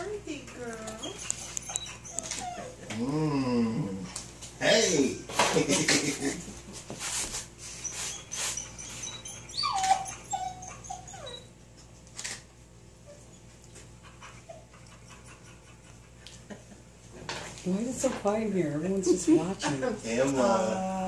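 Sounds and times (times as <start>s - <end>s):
dog whining and whimpering: 0.8s - 4.1s, 7.6s - 11.8s, 13.0s - 13.5s.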